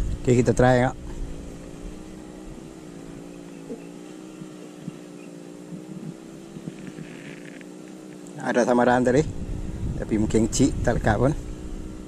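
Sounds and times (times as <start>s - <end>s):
engine drone: 0.0s - 12.0s.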